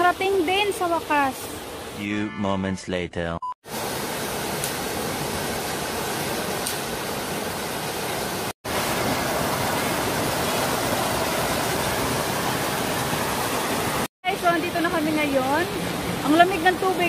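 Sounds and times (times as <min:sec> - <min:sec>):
waterfall cascading over rocks: 0:03.7 - 0:17.0.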